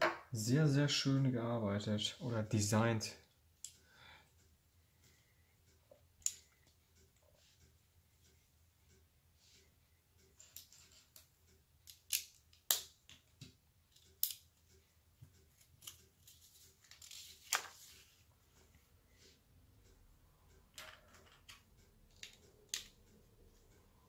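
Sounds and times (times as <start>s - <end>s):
paper page rustle: 15.7s - 18.3s.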